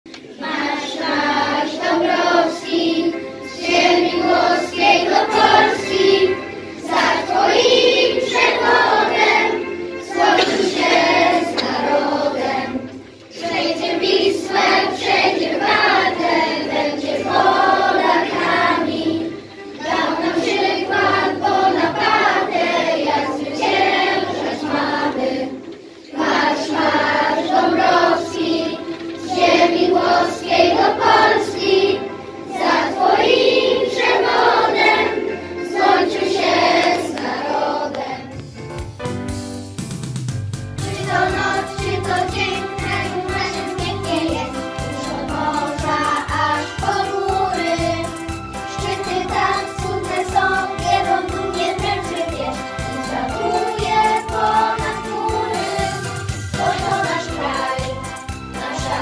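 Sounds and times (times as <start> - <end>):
children's choir singing: 0.1 - 38.6, 40.8 - 59.0.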